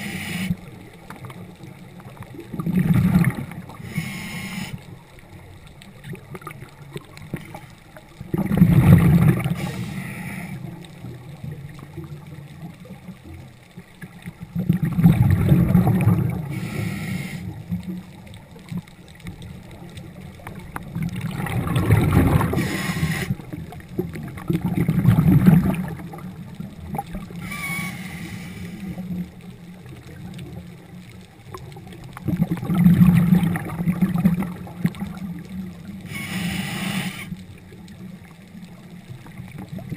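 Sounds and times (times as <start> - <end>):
regulator bubbling bursts: 2.5 - 3.7, 8.3 - 9.8, 14.6 - 17.0, 21.0 - 23.6, 24.2 - 27.9, 32.2 - 35.2.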